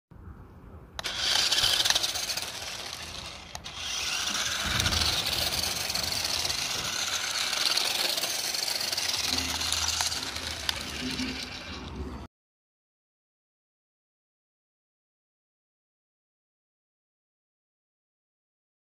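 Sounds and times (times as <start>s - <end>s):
toy truck electric motor whine: 1.0s - 12.3s.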